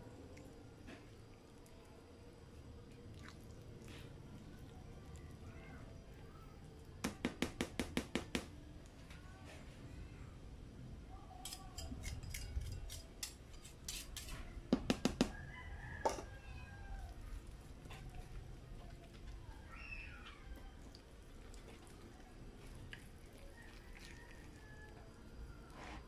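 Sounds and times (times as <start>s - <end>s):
batter being stirred: 11.3s - 26.0s.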